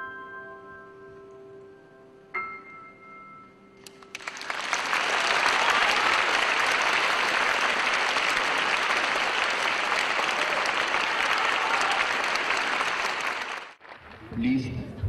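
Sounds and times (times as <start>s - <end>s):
audience applauding: 3.9s - 14.8s.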